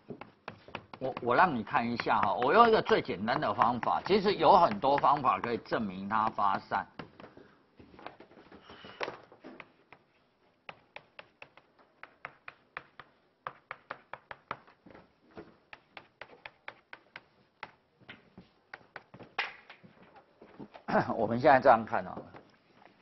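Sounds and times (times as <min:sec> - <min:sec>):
chalk tapping on blackboard: 0:00.0 - 0:07.4, 0:09.6 - 0:15.0, 0:15.6 - 0:19.3.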